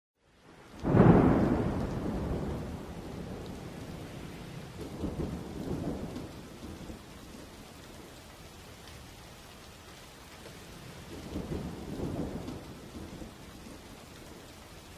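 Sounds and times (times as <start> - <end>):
thunder clap and rumble: 0.8 - 8.2, 10.6 - 14.6.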